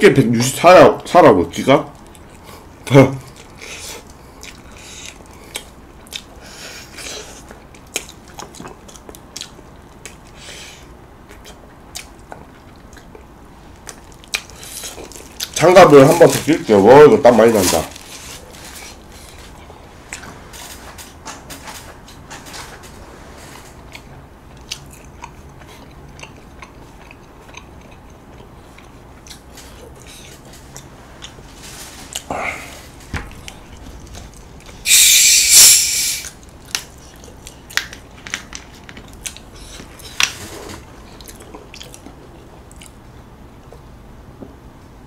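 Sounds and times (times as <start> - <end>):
bottle hiss of carbonation: 34.9 - 36.2.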